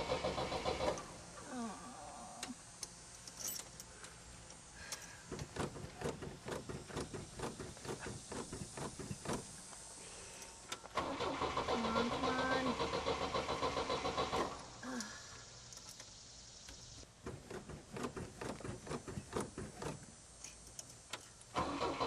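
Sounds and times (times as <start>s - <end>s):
starter cranking engine: 0.0s - 1.2s, 10.8s - 14.8s, 21.5s - 22.0s.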